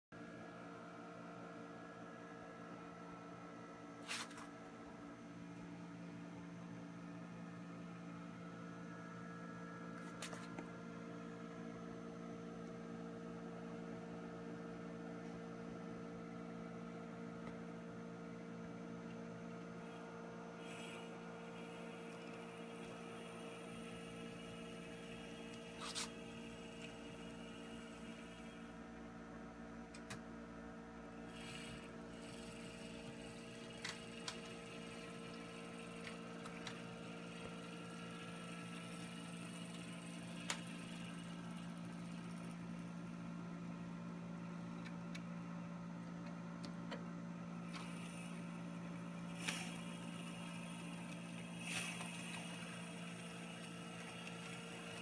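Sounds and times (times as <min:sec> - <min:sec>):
model train motor hum: 0:19.7 - 0:28.8, 0:31.2 - 0:43.4, 0:47.6 - 0:55.0.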